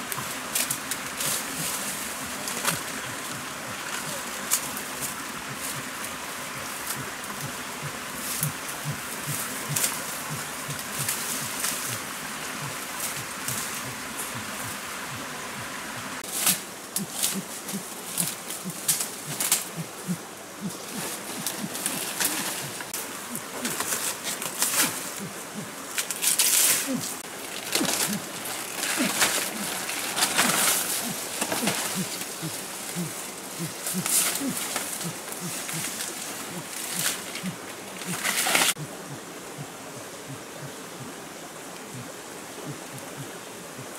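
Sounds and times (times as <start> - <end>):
bamboo leaves rustling and crackling: 0.0 - 38.8
steady hiss: 0.0 - 43.9
short low animal calls: 27.8 - 28.3.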